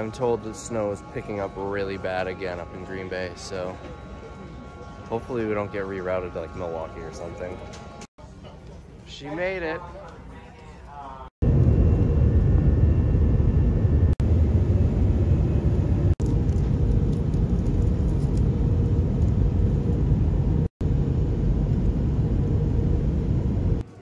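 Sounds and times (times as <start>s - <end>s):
jet airliner cabin rumble: 11.4s - 23.8s.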